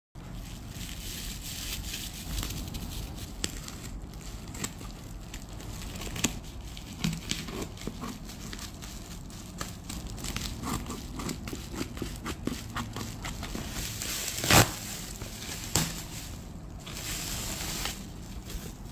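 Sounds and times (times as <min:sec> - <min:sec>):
bubble wrap crinkling: 0:00.2 - 0:18.9
scissors cutting wrap: 0:01.3 - 0:16.1.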